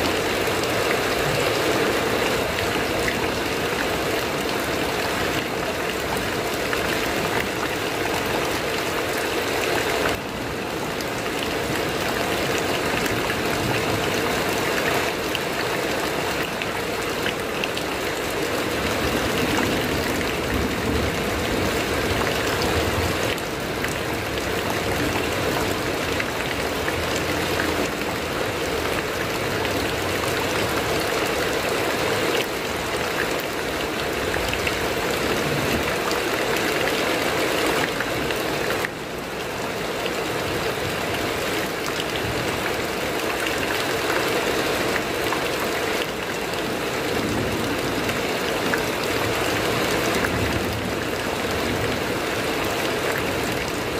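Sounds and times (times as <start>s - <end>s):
heavy rain on metal roof: 0.0s - 53.9s.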